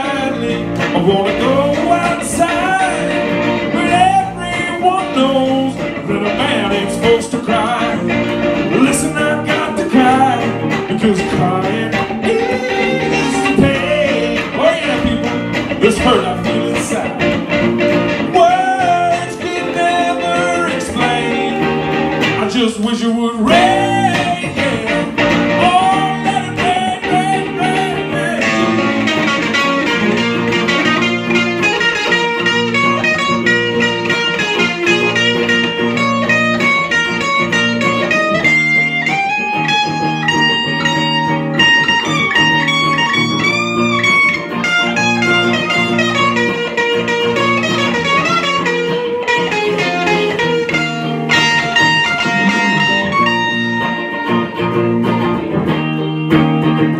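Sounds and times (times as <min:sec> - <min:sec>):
man singing: 0:00.0 - 0:17.5, 0:18.2 - 0:30.0, 0:51.4 - 0:53.4
electric guitars playing blues: 0:00.0 - 0:56.9
lead guitar line: 0:00.0 - 0:56.9.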